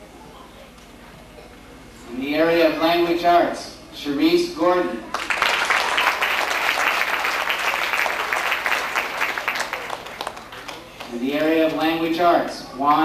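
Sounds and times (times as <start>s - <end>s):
audience applauding: 5.1s - 11.2s.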